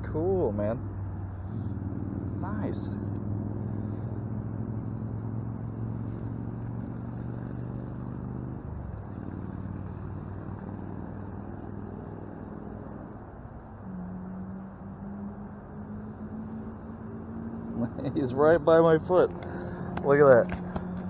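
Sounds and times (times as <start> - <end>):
noise haze: 0.0 - 13.9
low engine hum: 0.0 - 21.0.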